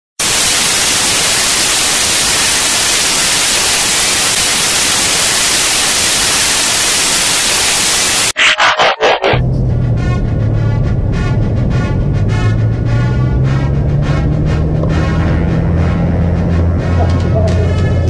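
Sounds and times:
television static hiss: 0.2 - 9.3.

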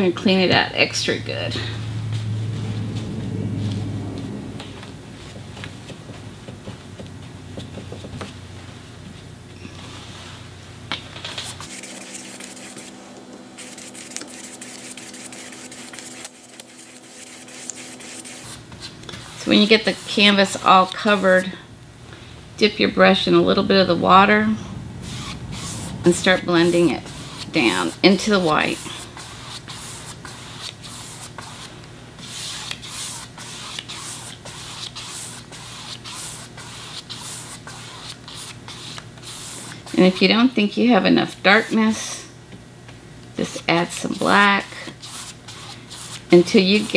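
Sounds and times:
paintbrush strokes on canvas: 25.0 - 40.0.

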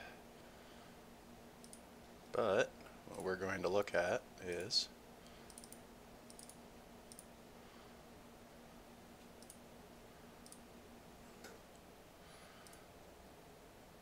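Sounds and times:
faint low hum: 0.0 - 14.0
faint computer mouse clicks: 1.6 - 1.8, 4.5 - 7.3, 9.2 - 9.6, 12.6 - 12.8.

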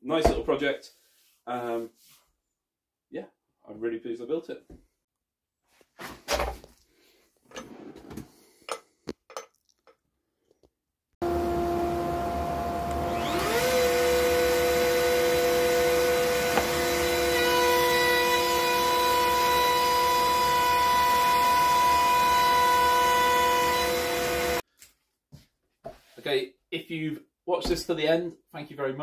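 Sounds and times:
dust extractor humming: 11.2 - 24.6
router motor whine: 11.2 - 24.6.

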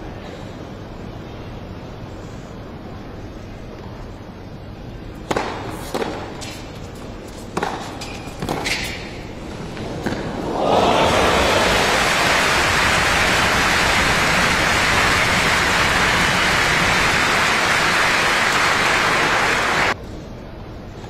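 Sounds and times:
crowd applauding: 10.6 - 20.0.

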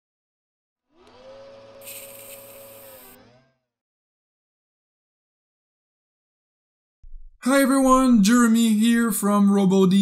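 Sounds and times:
bright hiss: 1.8 - 3.0.

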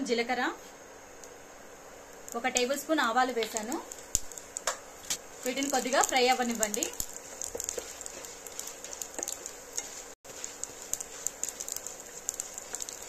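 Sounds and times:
seeds sizzling in hot oil: 0.0 - 13.0
spatula stirring in a pan: 3.4 - 13.0.

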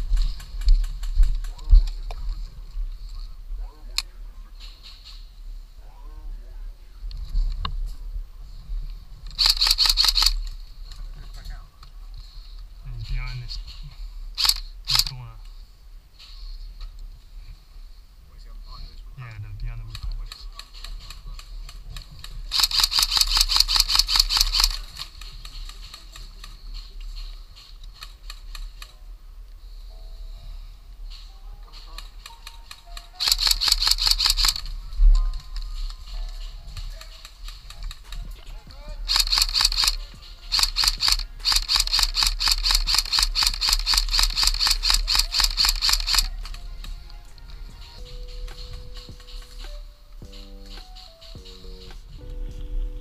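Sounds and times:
airsoft guns firing rapidly: 22.5 - 26.3, 33.2 - 34.7, 39.1 - 46.6.

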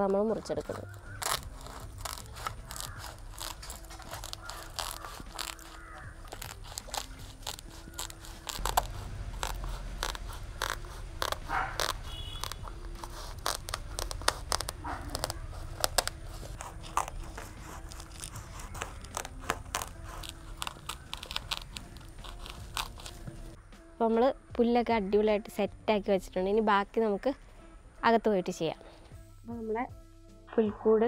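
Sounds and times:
crunching snips and scrapes: 0.0 - 23.6.

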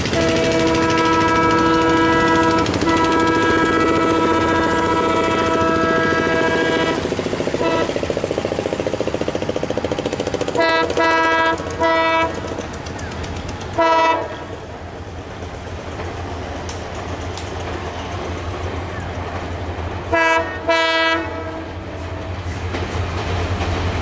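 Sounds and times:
locomotive air horn: 0.0 - 8.2, 10.6 - 12.6, 13.7 - 14.6, 20.1 - 22.4
locomotive low rumble: 0.0 - 24.0.

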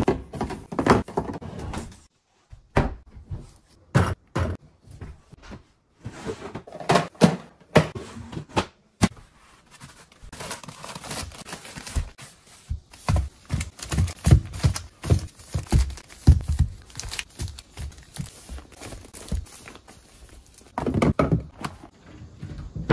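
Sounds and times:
items knocking on wooden shelves: 0.0 - 2.0, 3.9 - 9.2, 11.8 - 19.6, 20.7 - 22.9
plastic wrapping crinkling: 13.4 - 20.8.

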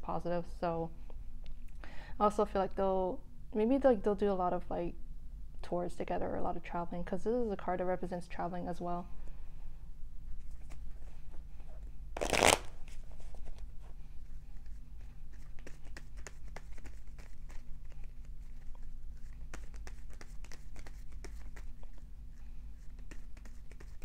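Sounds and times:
cards being shuffled: 12.2 - 13.7, 14.5 - 22.0, 22.8 - 24.0
loud rustle of cards: 12.2 - 24.0.

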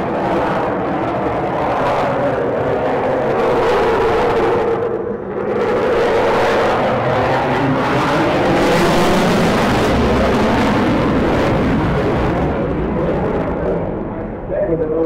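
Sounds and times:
loud jet engine noise: 0.0 - 15.0.

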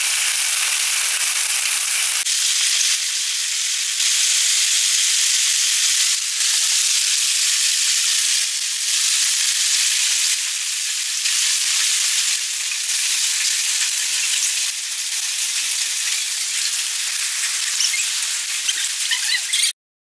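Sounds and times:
heavy rain and hail pouring: 0.0 - 3.1.

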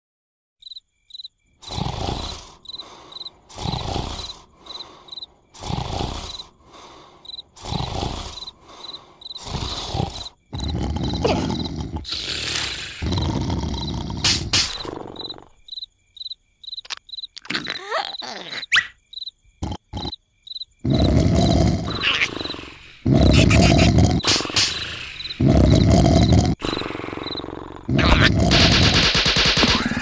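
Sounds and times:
crickets chirping: 0.6 - 30.0
cartoon snoring: 1.6 - 15.6, 17.4 - 18.9, 19.6 - 20.2, 20.8 - 30.0.

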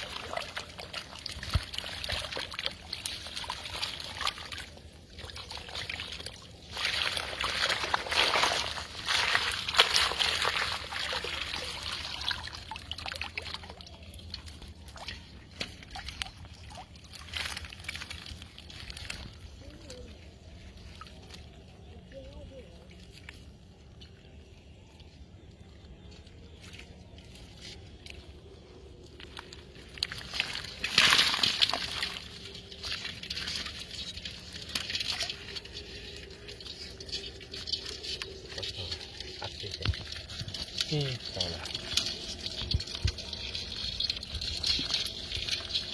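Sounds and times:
water splash: 0.0 - 19.3, 29.8 - 45.9
wet rustling: 0.0 - 22.1, 26.6 - 45.9
water dripping: 0.0 - 25.9, 28.0 - 45.9
water pouring and trickling: 0.0 - 45.9.

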